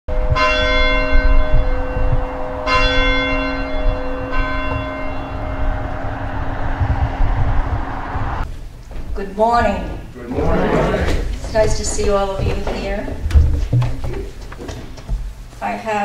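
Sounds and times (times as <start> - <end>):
church bell tolling: 0.1 - 8.4
low hum: 0.1 - 15.3.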